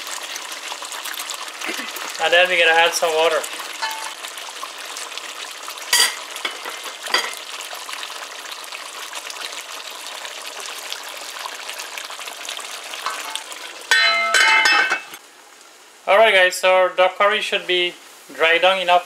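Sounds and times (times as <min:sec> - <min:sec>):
curry sizzling in a pot: 0:00.0 - 0:19.0.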